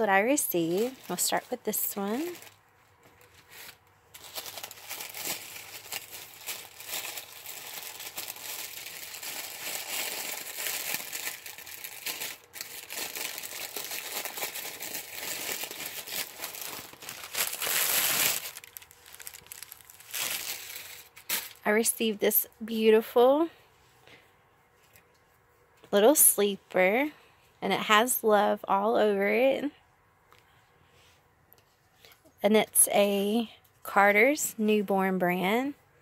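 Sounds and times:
gift wrapping crinkling: 0.0 - 21.8.

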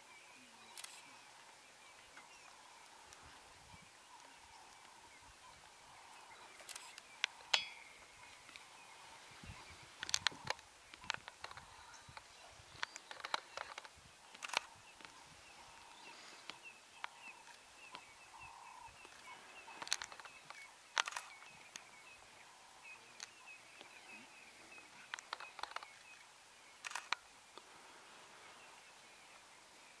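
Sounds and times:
camera shutter clicks: 14.4 - 14.7, 21.0 - 21.4, 26.8 - 27.2.

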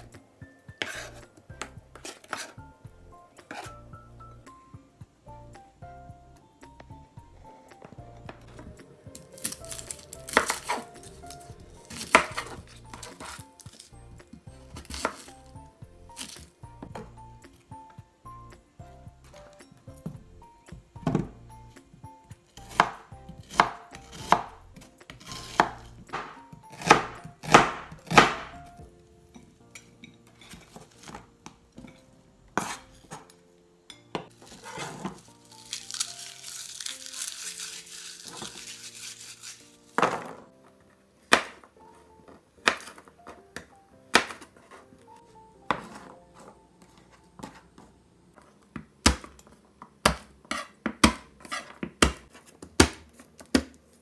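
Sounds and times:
faint background music: 0.0 - 54.0
papery rustling of garlic peeling: 9.2 - 14.0, 34.4 - 40.0
knife chopping on plastic board: 9.4 - 13.8, 14.7 - 15.3, 22.6 - 24.5, 25.1 - 28.6, 32.6 - 33.3, 42.6 - 44.6, 48.7 - 53.8.

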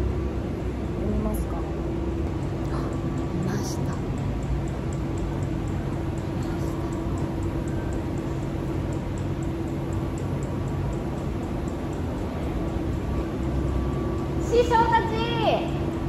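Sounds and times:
steady mechanical hum: 0.0 - 16.0.

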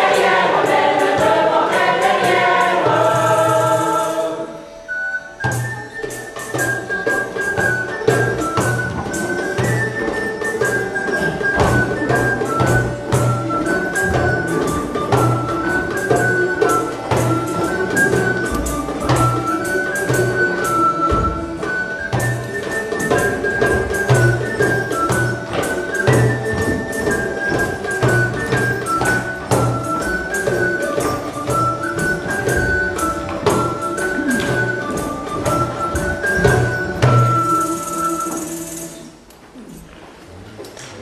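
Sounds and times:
recorder and hurdy-gurdy tune: 0.0 - 39.2
beaten drum: 6.1 - 38.7.

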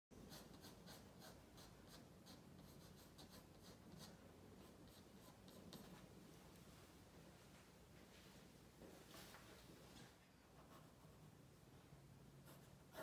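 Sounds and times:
pencil scratching on paper: 0.2 - 6.0, 12.4 - 13.0.

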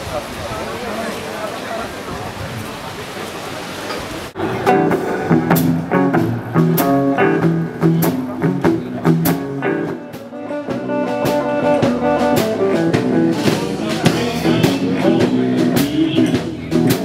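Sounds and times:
small band playing lively tune: 4.4 - 17.0.

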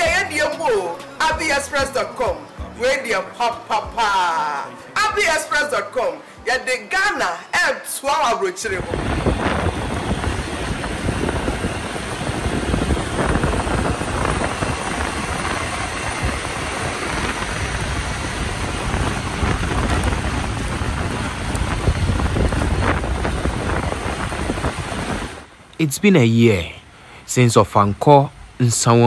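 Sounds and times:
wind buffeting microphone: 8.8 - 25.6
road traffic rumble: 8.8 - 29.0.

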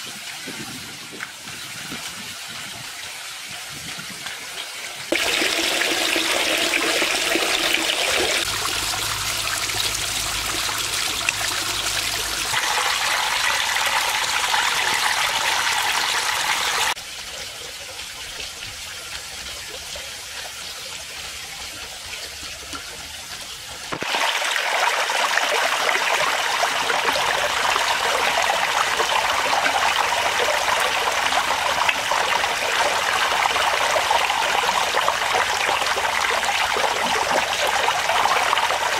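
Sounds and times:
water trickling over waterfall: 0.0 - 38.9.

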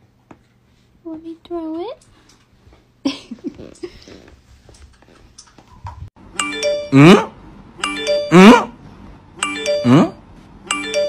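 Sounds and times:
looping music with chime chord: 6.4 - 7.2, 7.8 - 8.5, 9.4 - 11.0.

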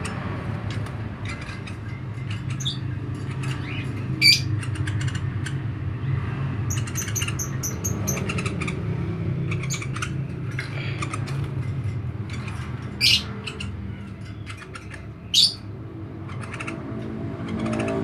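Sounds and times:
woodpecker squeaky calls: 1.2 - 5.7, 6.7 - 10.2, 12.2 - 18.0.

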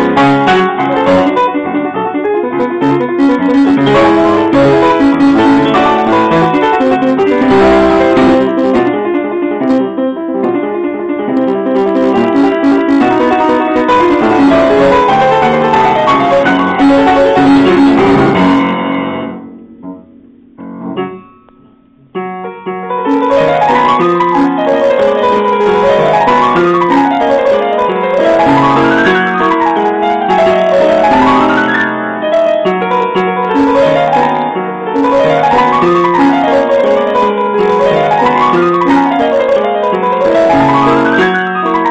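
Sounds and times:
upright piano playing: 0.0 - 21.4, 22.2 - 41.9.

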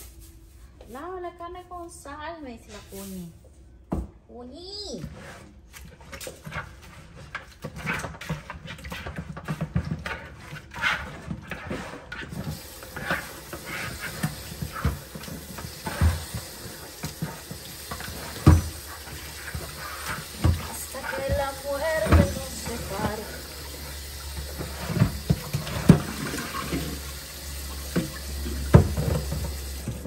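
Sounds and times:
tap water running: 5.9 - 30.0
hands scrubbing meat: 10.6 - 27.4.

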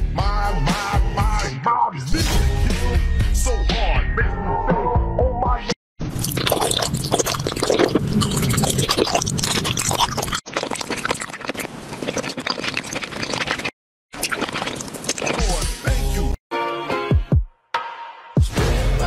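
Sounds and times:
gummy candy chewing: 6.2 - 15.8.

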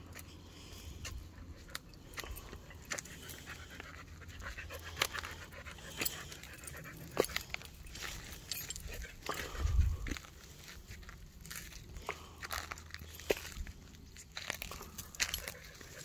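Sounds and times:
dog panting: 1.0 - 10.7, 14.6 - 16.0.

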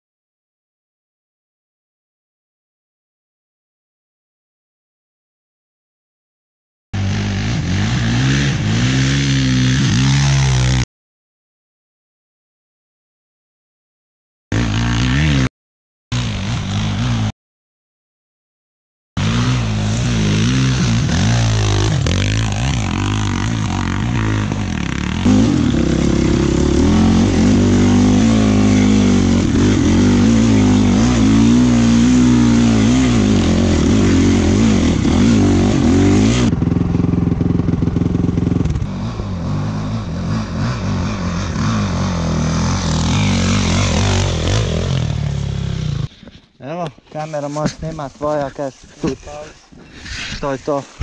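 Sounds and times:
dirt bike engine revving: 7.0 - 10.8, 14.5 - 15.5, 16.1 - 17.3, 19.2 - 46.1.

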